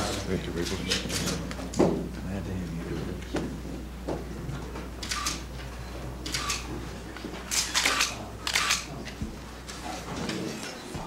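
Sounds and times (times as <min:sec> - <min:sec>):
camera shutters clicking: 0:05.0 - 0:05.5, 0:06.2 - 0:06.7, 0:07.5 - 0:08.9.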